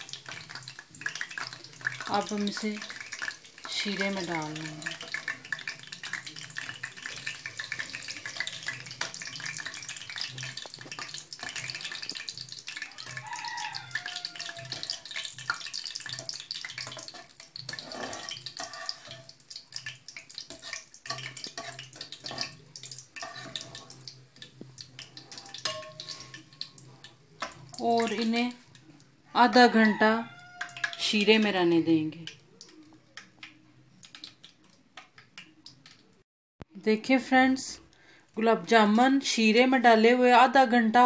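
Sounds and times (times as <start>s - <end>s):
food sizzling in hot oil: 0.0s - 36.1s
metal spoon clinking in pan: 14.2s - 24.0s, 24.9s - 28.3s.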